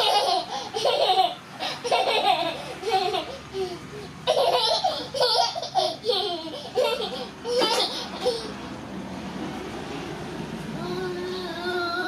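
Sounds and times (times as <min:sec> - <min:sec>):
young child laughing: 0:00.0 - 0:08.6.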